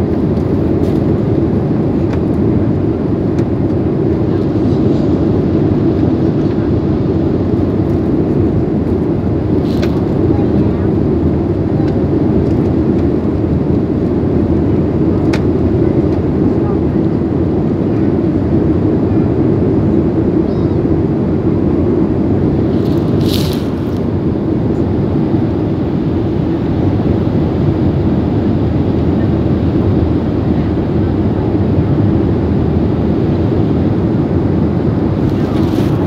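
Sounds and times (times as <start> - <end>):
jet engine roar in cabin: 0.0 - 36.0.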